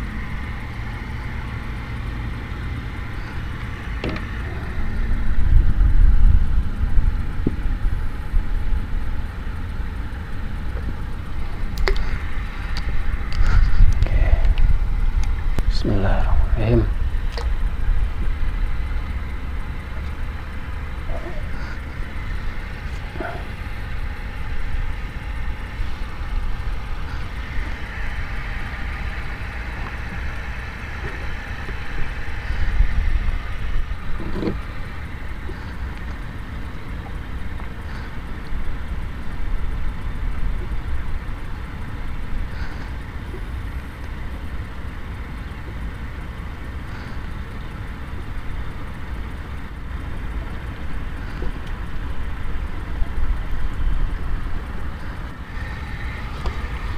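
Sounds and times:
wind buffeting microphone: 1.7 - 41.8.

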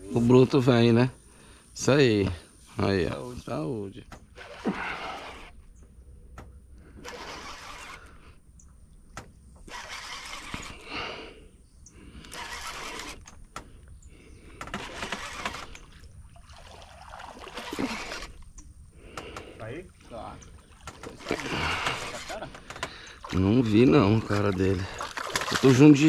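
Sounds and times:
person breathing: 1.2 - 1.8, 10.7 - 12.6, 13.6 - 14.7, 18.9 - 19.8, 21.3 - 23.3
faint clicks: 5.5 - 9.8, 11.8 - 16.2, 18.2 - 23.3.

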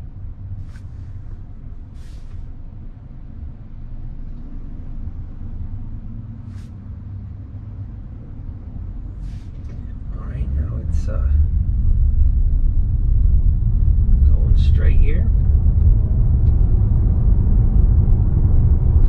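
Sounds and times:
car cabin low rumble: 0.0 - 19.0
brief hisses: 2.0 - 2.4, 9.2 - 9.6.

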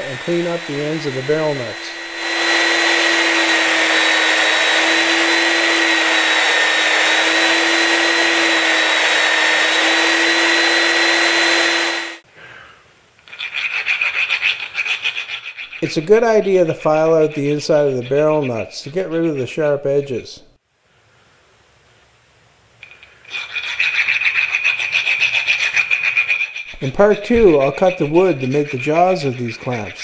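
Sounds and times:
belt sander grinding metal: 0.0 - 12.2, 23.3 - 30.0
file rasping metal: 0.0 - 12.2, 13.3 - 19.6, 23.3 - 30.0.

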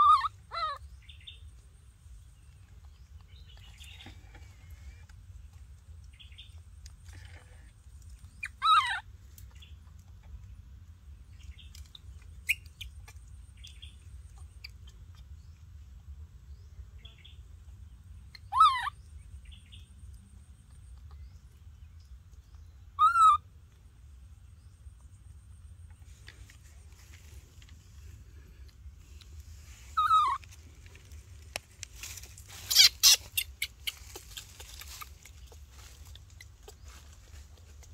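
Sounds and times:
baby monkey crying calls: 0.0 - 0.8, 8.3 - 9.1, 18.3 - 19.0, 23.0 - 23.5, 30.0 - 30.4, 32.6 - 35.1
steady low rumble: 0.0 - 37.9.

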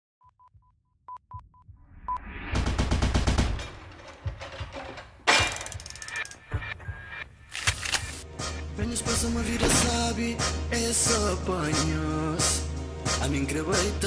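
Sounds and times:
machine-gun fire: 2.6 - 3.8.

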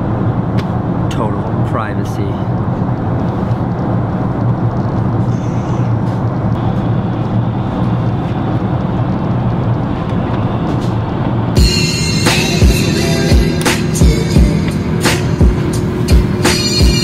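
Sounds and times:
airliner cabin rumble: 0.0 - 17.0.

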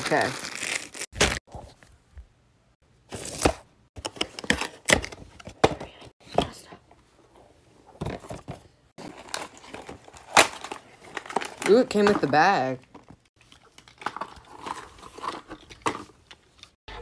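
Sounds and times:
plastic packaging crinkling: 0.0 - 1.4.

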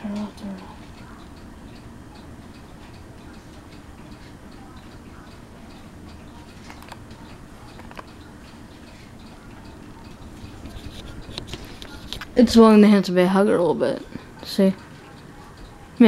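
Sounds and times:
ceiling fan humming: 0.0 - 16.0
light regular ticking: 0.0 - 16.0
sharp clicks: 0.1 - 12.4.

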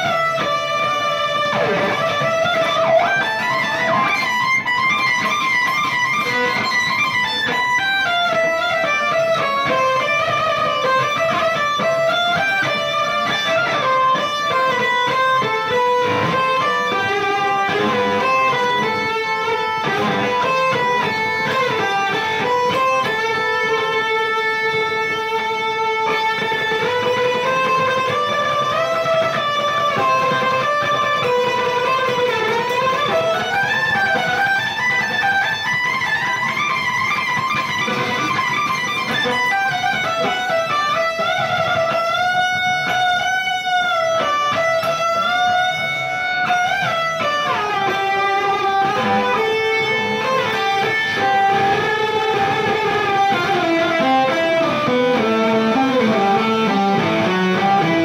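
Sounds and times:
electric guitar melody: 0.0 - 58.0.

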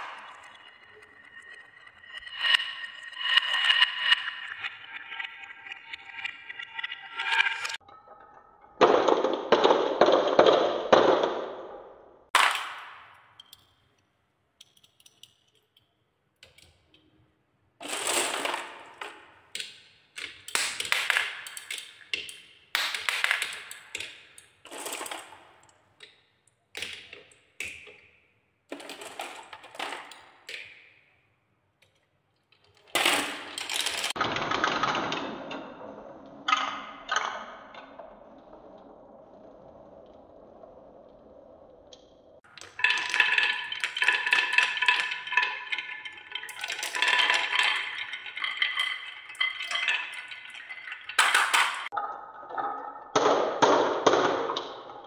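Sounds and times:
balls rolling down wooden tracks: 0.0 - 6.4, 8.8 - 13.5, 17.8 - 31.2, 32.6 - 55.0.

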